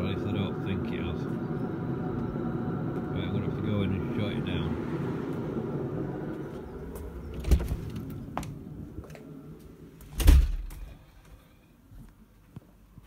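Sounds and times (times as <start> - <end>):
diesel heater rumbling: 0.0 - 11.4
door shutting: 7.1 - 8.6, 10.0 - 11.1.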